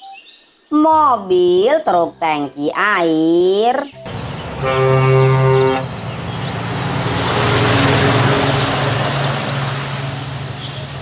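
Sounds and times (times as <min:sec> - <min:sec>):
truck air horn blast: 0:04.1 - 0:11.0
truck driving past: 0:04.1 - 0:11.0.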